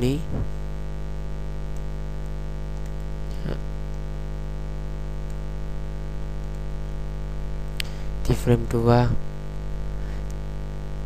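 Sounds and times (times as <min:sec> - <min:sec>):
electrical mains hum and buzz: 0:00.0 - 0:11.0.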